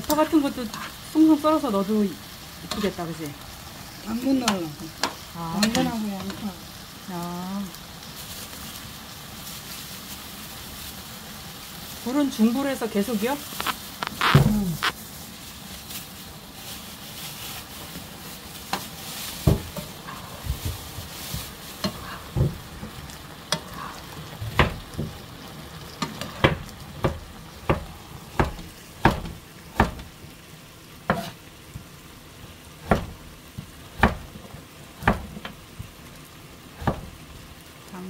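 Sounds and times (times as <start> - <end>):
food sizzling in a frying pan: 0.0 - 38.0
spatula stirring: 17.1 - 22.4.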